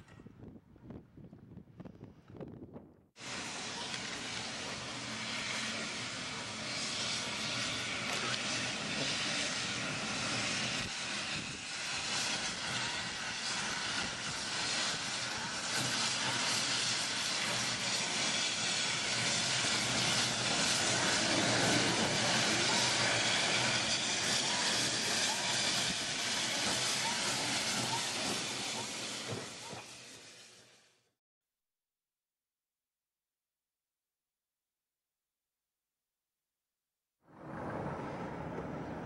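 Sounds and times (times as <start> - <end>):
steam locomotive rolling past: 3.2 - 31.0, 37.3 - 39.0.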